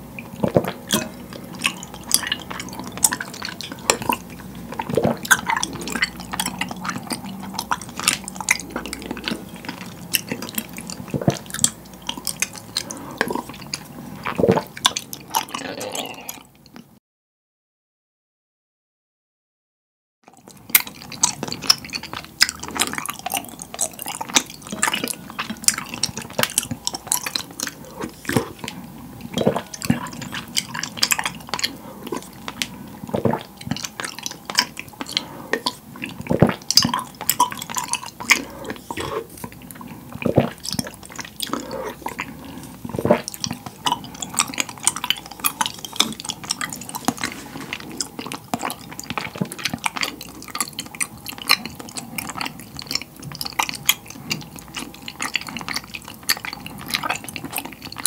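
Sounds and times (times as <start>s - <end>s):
liquid dripping and sloshing: 0.1s - 15.5s, 20.4s - 58.0s
chewing: 0.2s - 16.9s, 20.3s - 58.0s
wooden spoon stirring in glass bowl: 21.4s - 49.9s.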